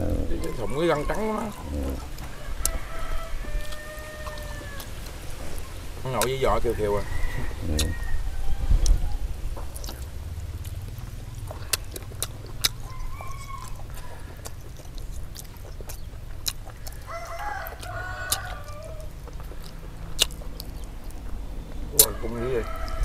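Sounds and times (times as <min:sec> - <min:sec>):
rooster crowing: 0:00.0 - 0:05.8, 0:06.4 - 0:09.4, 0:12.6 - 0:14.6, 0:16.7 - 0:19.3, 0:22.0 - 0:23.0
low rumble: 0:07.4 - 0:16.4, 0:19.1 - 0:22.0.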